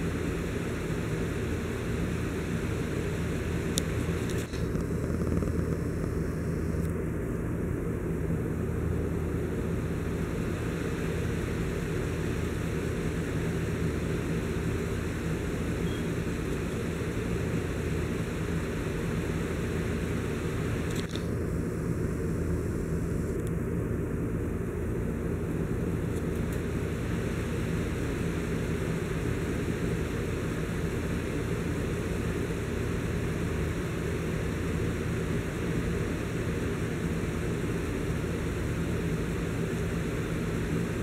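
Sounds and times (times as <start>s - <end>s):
low rumbling hum: 0.0s - 41.0s
faint click: 23.3s - 23.6s.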